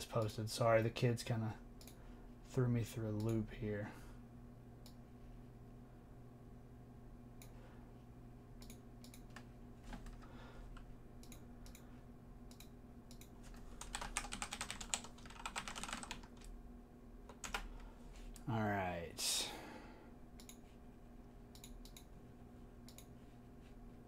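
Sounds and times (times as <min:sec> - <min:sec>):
steady low hum: 0:00.0 - 0:24.0
keyboard typing: 0:12.5 - 0:16.5, 0:17.3 - 0:17.7.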